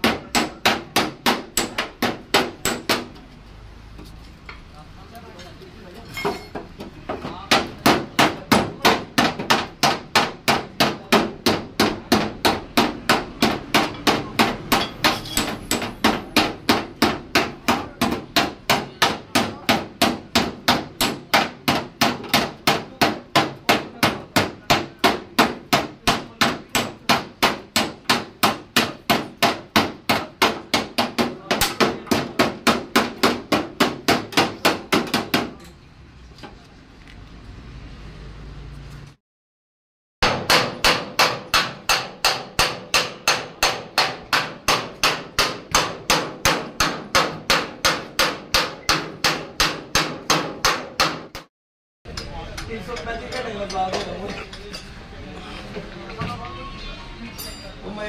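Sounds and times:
hammer beating sheet metal: 0:00.0 - 0:03.2, 0:07.2 - 0:35.6, 0:40.2 - 0:51.5.

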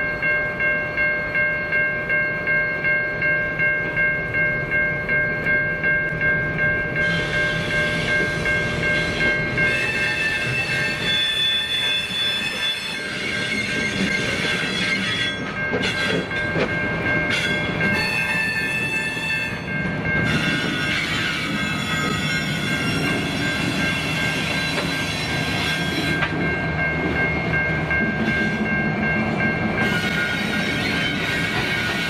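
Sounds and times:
locomotive engines rumbling: 0:03.5 - 0:32.0
wheels clattering on rail: 0:06.5 - 0:32.0
wheel squeal: 0:09.6 - 0:16.3.

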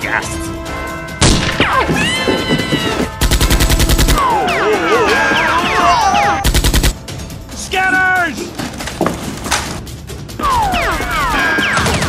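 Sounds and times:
background music: 0:00.0 - 0:12.0
machine-gun bursts: 0:03.2 - 0:04.2, 0:06.4 - 0:07.0.

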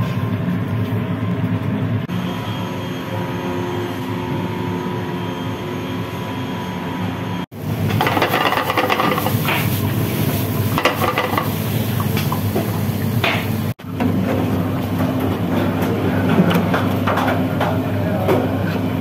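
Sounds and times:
kitchen extraction hum: 0:00.0 - 0:19.0
food sizzling in a metal pan: 0:07.7 - 0:13.0
stirring and scraping clicks: 0:08.0 - 0:09.4, 0:10.8 - 0:11.5.

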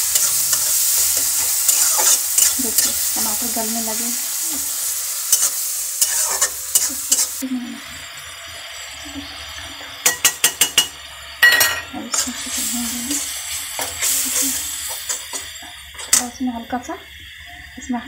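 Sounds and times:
metal spatula scraping: 0:00.0 - 0:03.0, 0:05.3 - 0:07.4
tomatoes sizzling in a pan: 0:00.0 - 0:18.0.

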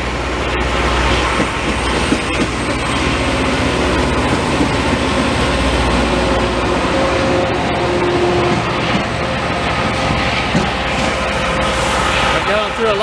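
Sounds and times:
rail grinding train rolling past: 0:00.0 - 0:13.0.

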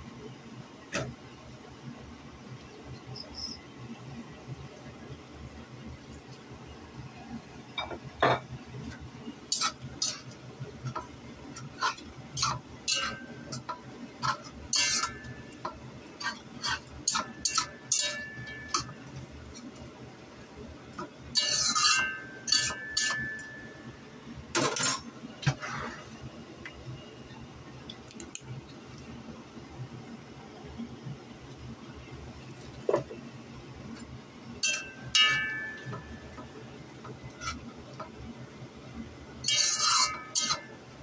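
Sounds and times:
metal spatula scraping a wok: 0:09.5 - 0:15.4, 0:16.2 - 0:18.9, 0:21.4 - 0:23.4, 0:24.6 - 0:26.2, 0:37.3 - 0:37.6, 0:39.5 - 0:40.7.

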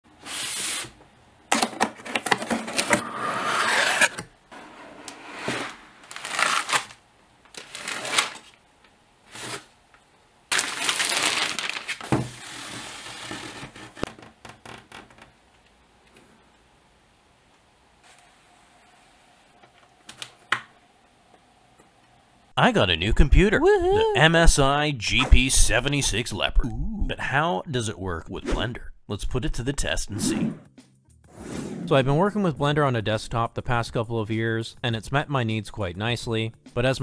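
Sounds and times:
plastic wrap and foam crinkling: 0:06.0 - 0:08.6, 0:10.5 - 0:14.0.

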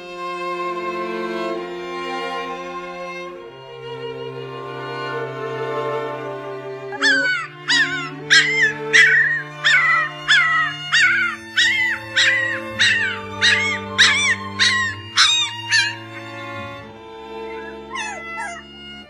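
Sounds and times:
music with low held notes: 0:01.1 - 0:19.0
puppy yelping: 0:06.9 - 0:19.0.

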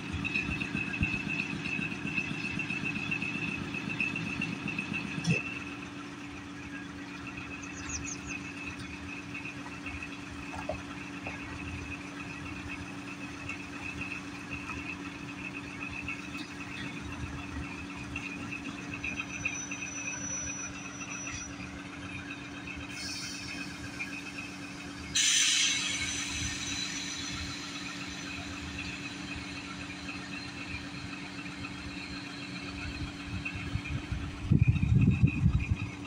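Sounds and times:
diesel locomotive idling: 0:00.0 - 0:36.0
air hiss: 0:22.9 - 0:23.9, 0:25.2 - 0:28.7.

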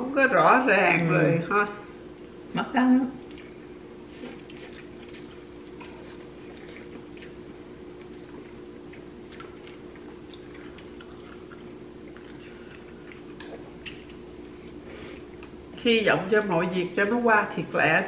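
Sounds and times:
low room hum: 0:00.0 - 0:18.0
chewing and slurping: 0:03.2 - 0:15.6.

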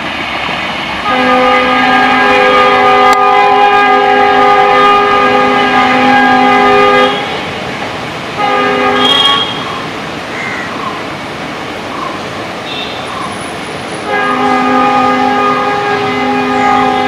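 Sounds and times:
locomotive air horn blasts: 0:01.0 - 0:07.5, 0:08.4 - 0:09.8, 0:12.7 - 0:13.1, 0:14.0 - 0:17.0.

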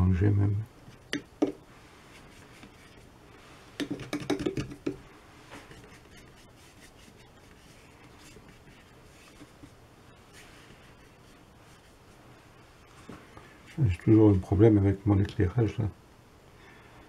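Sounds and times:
brush clicking and scraping: 0:00.9 - 0:12.1
faint brush strokes on paper: 0:01.6 - 0:03.8, 0:05.0 - 0:15.2.

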